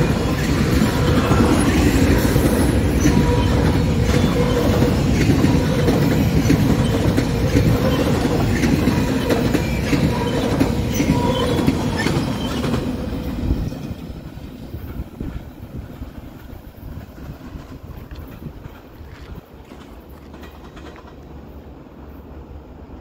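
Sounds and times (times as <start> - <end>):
train cars rolling on rails: 0.0 - 23.0
wheel squeal: 9.1 - 12.9.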